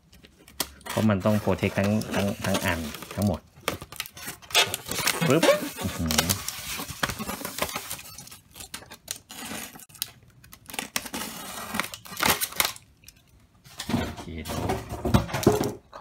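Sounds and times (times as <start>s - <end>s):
stick scraping polystyrene foam: 0.8s - 3.4s, 4.1s - 9.9s, 10.7s - 12.6s
plastic bag crinkling: 1.0s - 13.2s.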